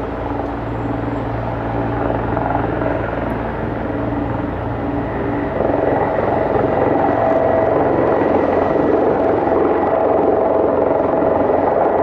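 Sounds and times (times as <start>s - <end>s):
helicopter engines humming: 0.0s - 12.0s
helicopter rotor beating: 0.0s - 12.0s.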